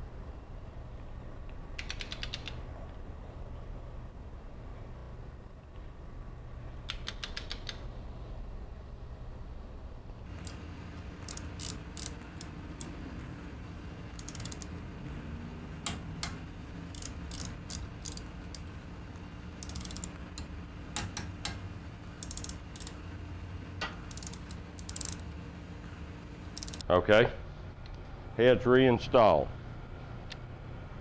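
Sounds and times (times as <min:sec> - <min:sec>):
low steady hum: 0:00.0 - 0:31.0
socket wrench ratcheting: 0:01.8 - 0:02.6, 0:11.2 - 0:12.9, 0:14.1 - 0:14.7, 0:16.9 - 0:18.6, 0:19.6 - 0:21.3, 0:22.2 - 0:23.0, 0:24.0 - 0:25.2, 0:26.6 - 0:26.8.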